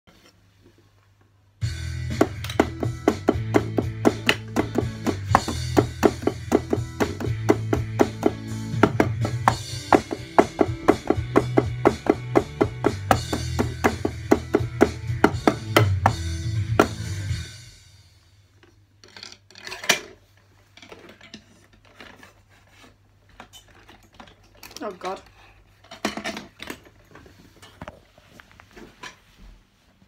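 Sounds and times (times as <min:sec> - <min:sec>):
low bass: 0:01.6 - 0:17.7
electronic drum kit beat: 0:01.6 - 0:18.1.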